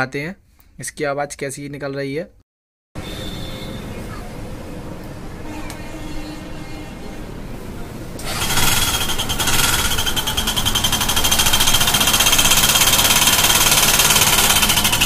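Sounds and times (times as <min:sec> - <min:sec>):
metallic engine clatter: 0:08.2 - 0:15.0
motorcycle engine starting: 0:08.2 - 0:15.0.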